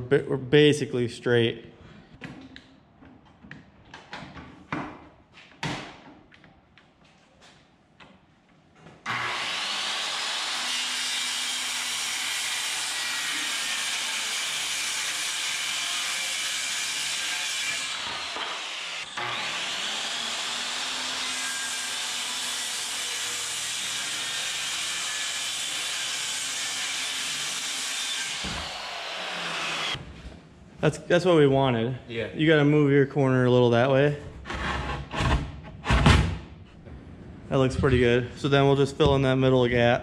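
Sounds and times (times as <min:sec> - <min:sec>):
circular saw cutting plywood: 0:09.0 - 0:30.0.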